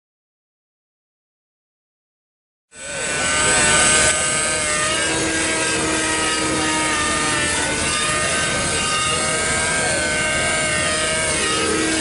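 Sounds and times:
model helicopter engine and rotor: 2.8 - 12.0.

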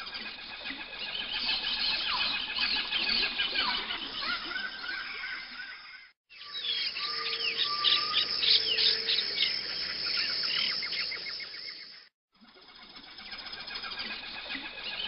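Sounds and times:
birds chirping and calling: 0.0 - 12.1, 12.7 - 15.0
insect trilling: 6.4 - 15.0.

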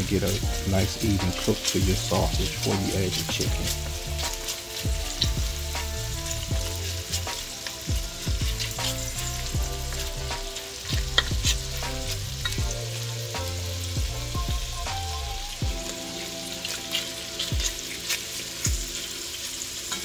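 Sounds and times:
wooden spoon scraping a pot: 0.0 - 13.9
sausage sizzling in oil: 0.0 - 20.0.

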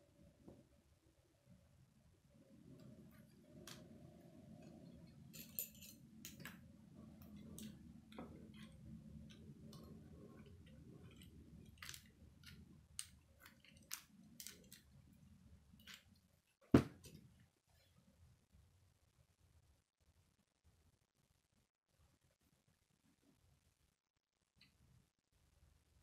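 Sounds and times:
faint low hum: 0.0 - 26.0
plastic pieces clicking together: 11.0 - 15.1.

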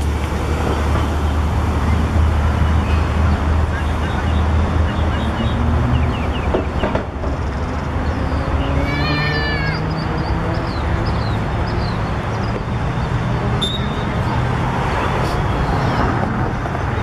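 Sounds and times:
faint high calls: 8.6 - 10.1
child shouting: 8.7 - 9.9.

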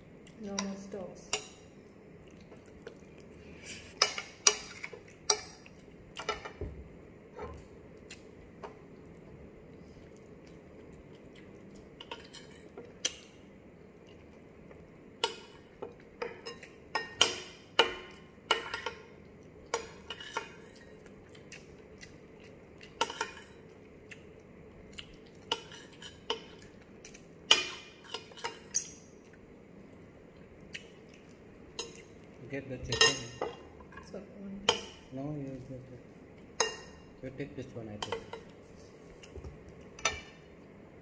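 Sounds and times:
cutlery clinking on a plate: 32.9 - 34.1.

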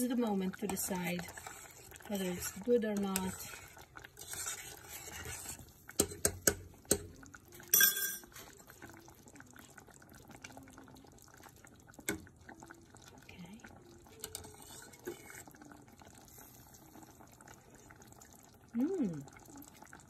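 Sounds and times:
stew bubbling: 0.0 - 20.0
spoon scraping pot: 0.5 - 7.0, 14.1 - 15.7
spoon clinking against pot: 7.7 - 8.4.

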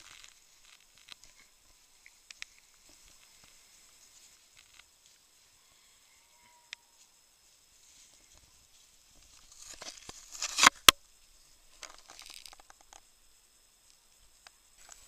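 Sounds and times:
twigs snapping: 9.4 - 11.0, 11.8 - 13.0.

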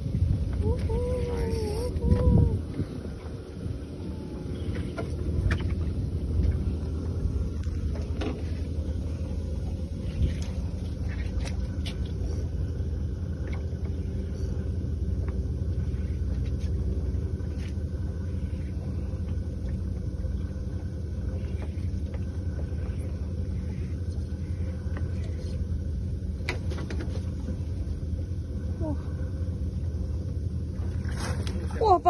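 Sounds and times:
boat engine running: 0.0 - 32.0.

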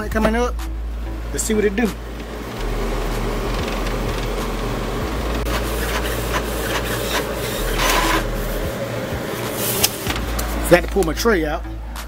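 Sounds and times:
inkjet printer printing: 1.9 - 10.6.

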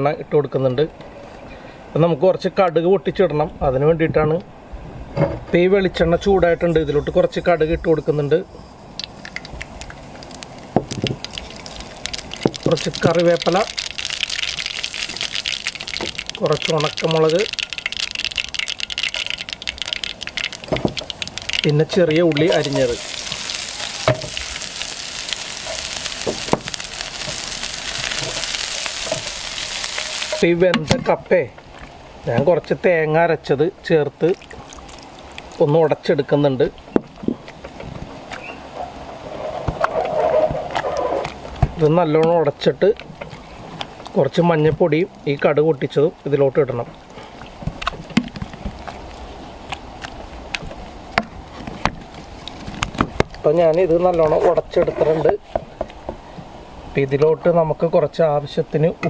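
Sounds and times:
shallots sizzling in oil: 8.0 - 30.6.

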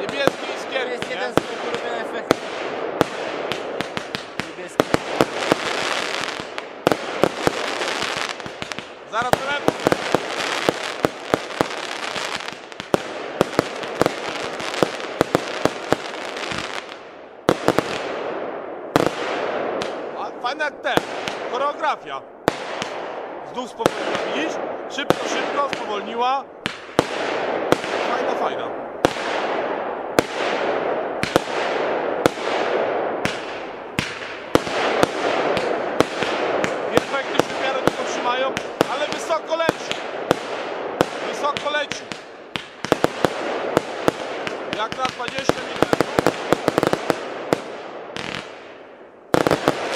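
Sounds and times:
firework crackling hiss: 0.0 - 17.0
firework hiss and crackle: 0.0 - 21.9, 22.5 - 49.9
firework bangs: 0.0 - 49.9.

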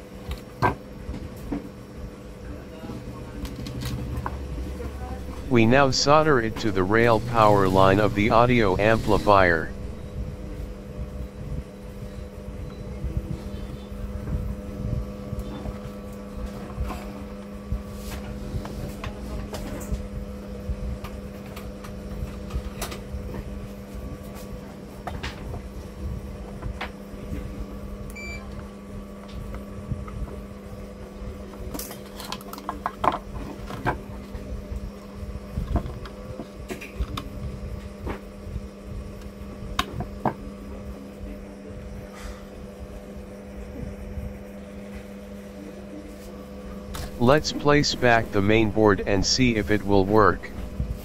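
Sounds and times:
low electrical hum: 5.0 - 10.4, 47.0 - 51.0.

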